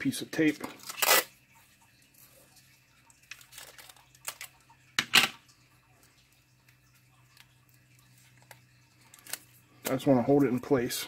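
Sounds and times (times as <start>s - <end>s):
tape ripping off roll: 0.8s - 1.3s
adhesive tape rustle and click: 7.3s - 10.0s.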